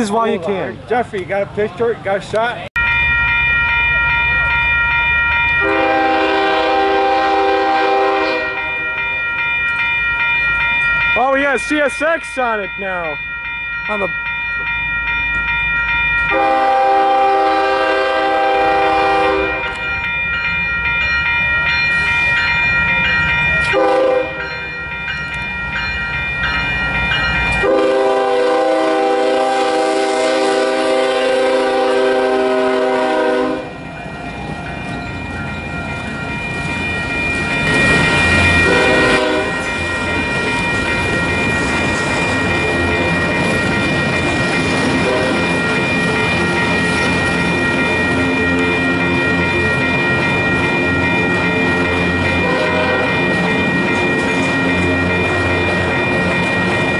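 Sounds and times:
freight train rumbling: 0.0 - 56.9
locomotive air horn blasts: 5.6 - 8.7, 16.3 - 19.7, 23.7 - 24.4, 27.6 - 33.7, 38.6 - 39.6, 45.0 - 45.4, 52.4 - 53.2.

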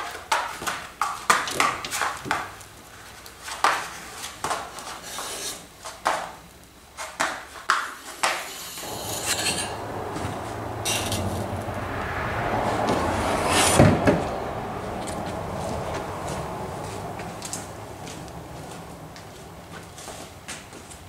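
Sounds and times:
steady rushing noise: 8.8 - 19.6.

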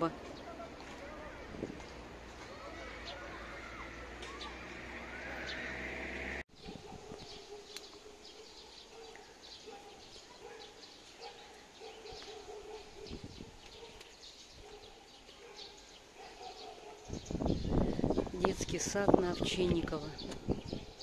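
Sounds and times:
small birds chirping: 6.5 - 21.0.

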